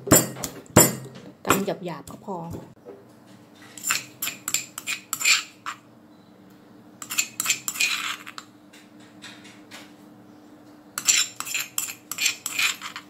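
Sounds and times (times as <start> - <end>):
metal spoon scraping stone mortar: 3.7 - 5.8, 7.0 - 8.5, 11.0 - 13.0.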